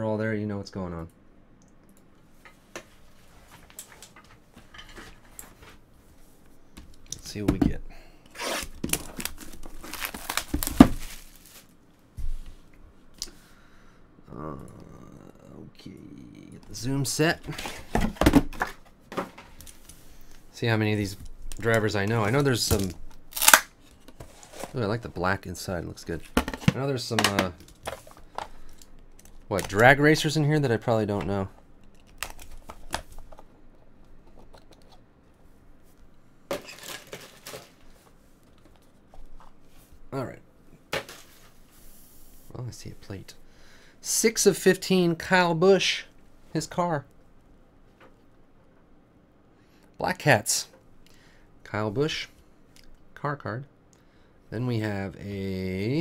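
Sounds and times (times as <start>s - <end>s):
plastic wrap tearing and crinkling: 8.4s - 11.8s, 22.2s - 23.8s, 36.6s - 37.8s
box rustles and knocks: 17.6s - 19.5s.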